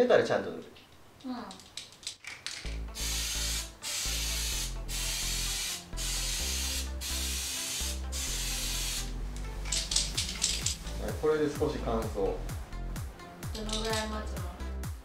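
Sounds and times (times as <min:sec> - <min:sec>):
background music with bass: 0:02.7 - 0:15.0
aerosol spray can hissing: 0:02.9 - 0:10.9.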